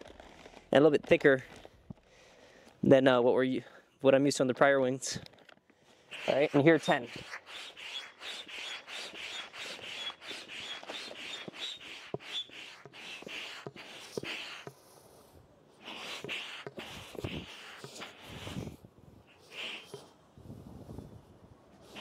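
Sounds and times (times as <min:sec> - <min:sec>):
hand pump hissing air: 0:06.0 - 0:20.1.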